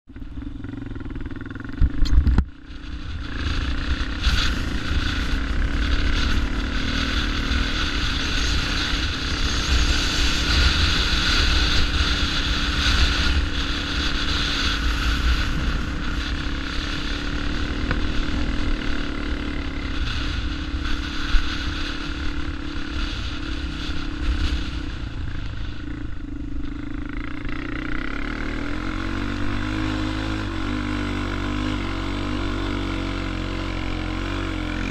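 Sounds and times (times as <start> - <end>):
atv engine revving: 0.2 - 34.9
wind rush on microphone: 1.8 - 27.0.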